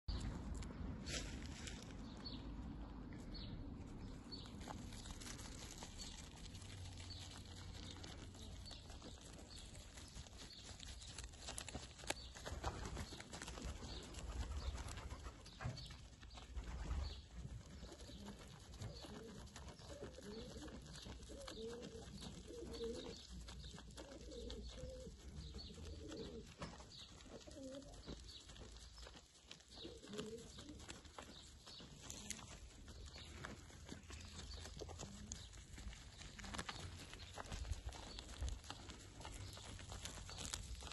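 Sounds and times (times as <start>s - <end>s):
goat chewing leaves: 4.0s - 40.9s
bird calling softly: 17.9s - 29.1s.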